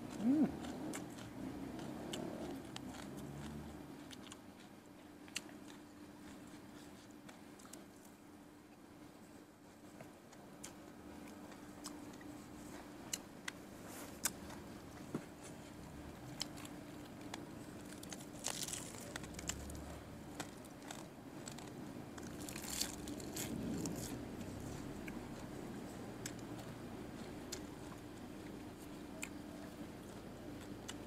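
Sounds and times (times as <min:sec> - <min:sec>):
close chewing and crunching: 0:00.0 - 0:31.0
food rustling by hand: 0:13.8 - 0:25.6.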